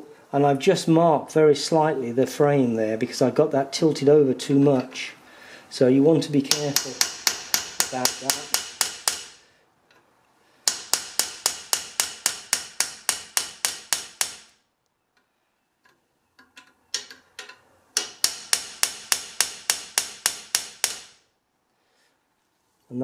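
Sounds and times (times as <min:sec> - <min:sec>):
hammer striking metal: 0:06.5 - 0:09.4, 0:10.6 - 0:14.6, 0:18.0 - 0:21.2.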